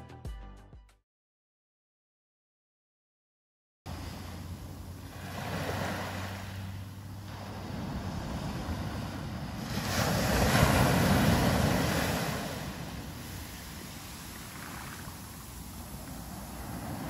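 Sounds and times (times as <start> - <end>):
ocean waves breaking on sand: 3.9 - 17.0.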